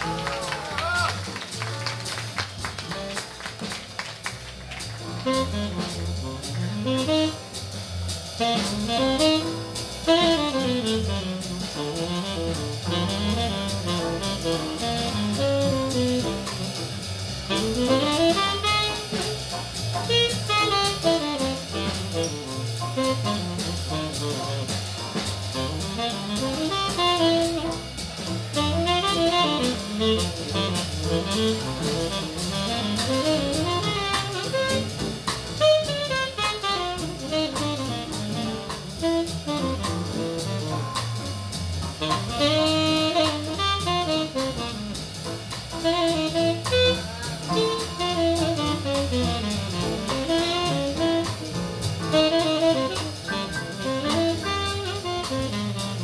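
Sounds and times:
drum kit: 0.0 - 56.0
tenor saxophone jazz solo: 0.0 - 56.0
upright bass: 0.0 - 56.0.

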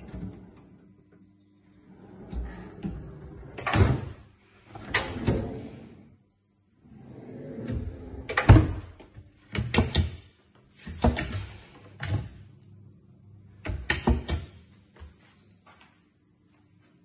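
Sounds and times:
drawers and cabinet doors closing: 1.8 - 6.0, 6.9 - 10.2, 10.8 - 12.4.

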